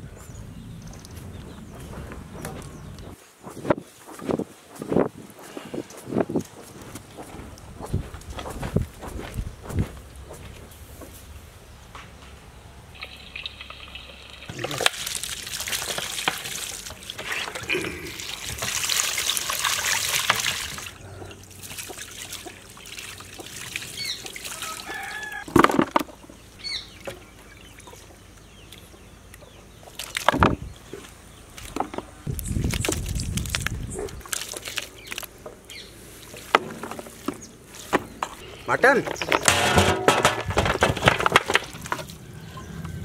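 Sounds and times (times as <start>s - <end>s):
water splashing over meat: 13.0s - 20.9s, 21.5s - 25.4s
hands washing meat: 14.5s - 20.9s, 21.5s - 25.4s, 32.5s - 35.4s
small bird chirps: 26.6s - 30.0s
sharp thumps: 39.1s - 41.8s.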